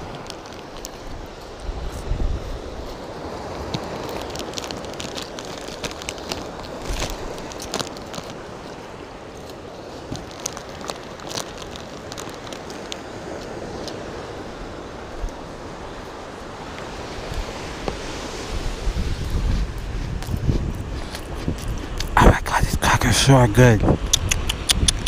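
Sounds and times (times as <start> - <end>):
crackers crunching being chewed: 0.0 - 14.0, 20.2 - 23.3
wind: 0.0 - 25.0.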